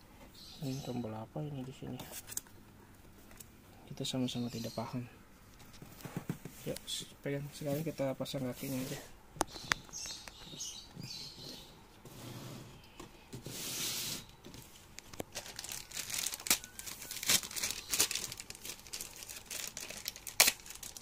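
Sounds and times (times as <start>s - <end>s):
plastic and cardboard rustling: 5.5s - 21.0s.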